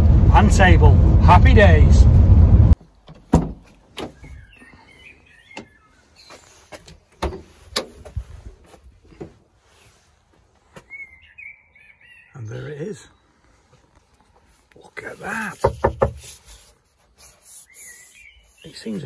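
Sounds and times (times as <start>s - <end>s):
knocks and clunks of handling: 2.8s - 4.4s, 6.7s - 8.2s
faint bird chirps: 4.1s - 6.8s, 10.7s - 13.7s, 17.2s - 19.0s.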